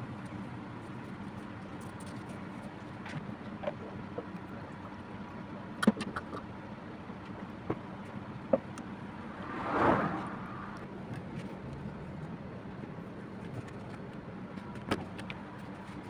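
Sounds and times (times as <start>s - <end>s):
rushing noise: 9.2s - 10.8s.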